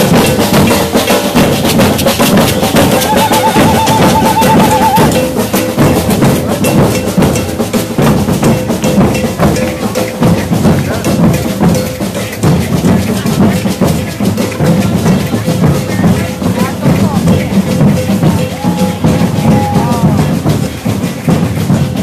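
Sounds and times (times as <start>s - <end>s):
gourd shakers: 0.0s - 6.2s
crowd voices: 0.0s - 22.0s
drums beaten with sticks: 0.0s - 22.0s.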